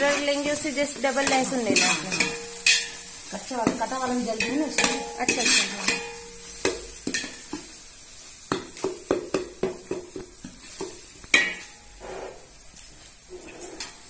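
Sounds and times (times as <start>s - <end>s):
metal ladle scraping a metal pot: 11.4s - 12.6s, 13.3s - 14.0s.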